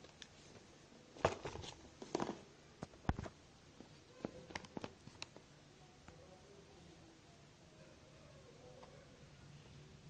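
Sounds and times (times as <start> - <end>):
cardboard rustling and scraping: 1.2 - 2.4.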